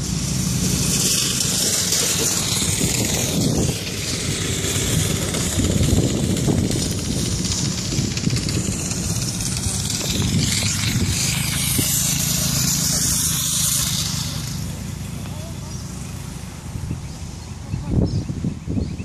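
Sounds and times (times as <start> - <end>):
go-kart engine running: 0.0 - 19.0.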